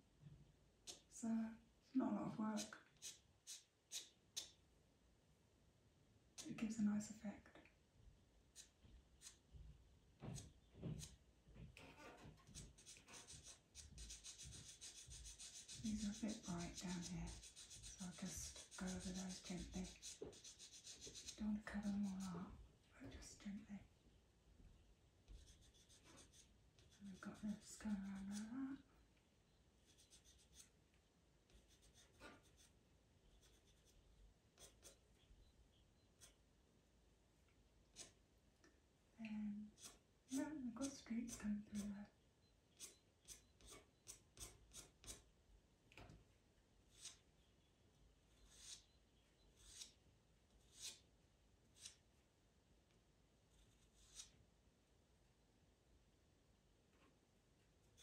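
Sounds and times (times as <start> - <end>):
pencil scratching on paper: 2.6 - 4.5, 12.0 - 22.5, 25.3 - 28.5, 29.8 - 30.7, 31.5 - 34.0, 34.6 - 35.0, 36.2 - 36.4, 37.9 - 38.2, 39.7 - 41.9, 42.8 - 45.2, 46.9 - 47.2, 48.3 - 48.9, 49.6 - 50.0, 50.6 - 51.0, 51.8 - 52.0, 53.5 - 54.4.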